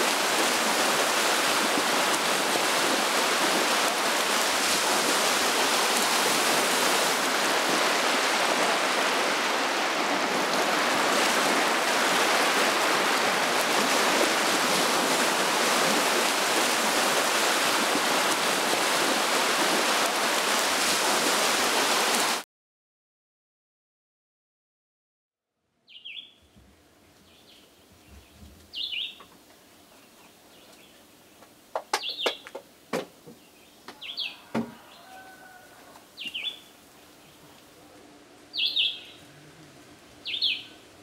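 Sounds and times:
choppy waves washing: 0:00.0 - 0:22.4.

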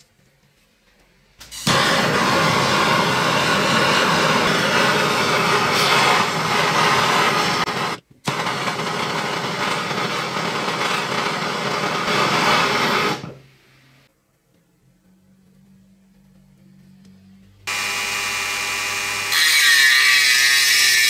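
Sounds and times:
gas torch hissing: 0:01.5 - 0:13.5.

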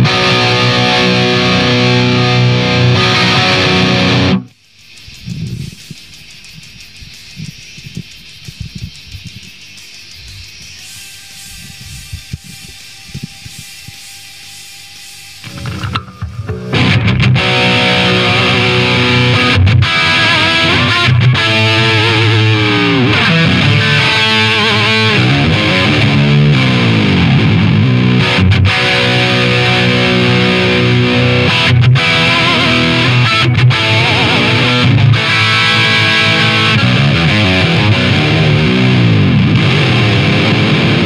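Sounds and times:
distorted electric guitar riff: 0:00.0 - 0:06.4, 0:10.1 - 0:41.0.

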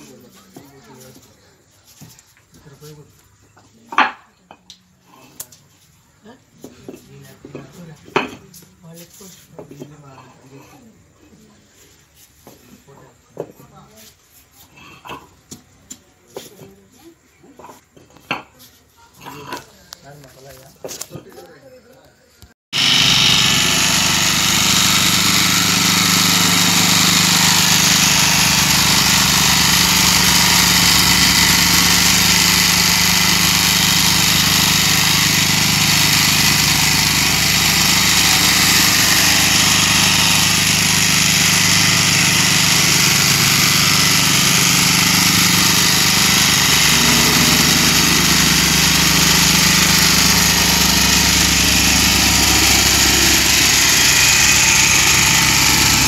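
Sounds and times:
plate compactor engine rattling: 0:22.8 - 0:56.0.

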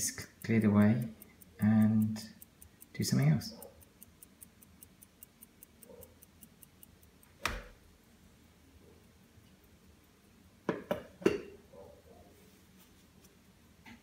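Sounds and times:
pocket watch ticking: 0:00.0 - 0:11.2.

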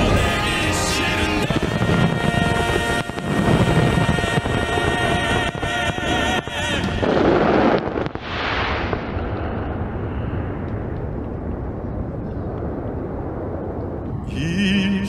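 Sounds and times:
music with singing: 0:00.0 - 0:07.2
fireworks booming: 0:00.0 - 0:15.0
low rumble: 0:00.0 - 0:15.0.

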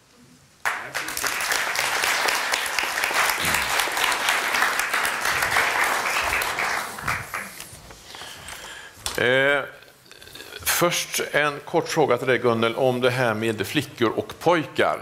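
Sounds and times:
audience applauding: 0:00.6 - 0:07.8.

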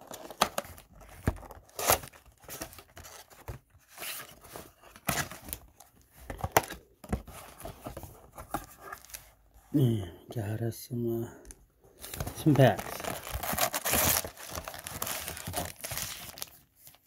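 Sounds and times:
cardboard ripping and scraping: 0:00.0 - 0:05.5, 0:12.0 - 0:17.0.

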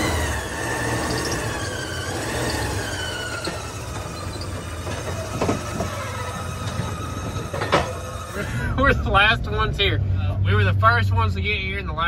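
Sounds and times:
high squeal sliding down: 0:00.0 - 0:08.4
truck engine running: 0:00.0 - 0:12.0.

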